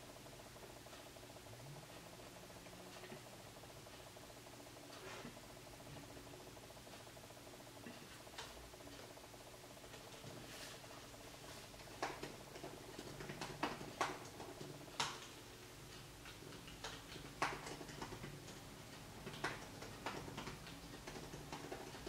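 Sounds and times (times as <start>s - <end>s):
typing on laptop keyboard: 11.7s - 22.0s.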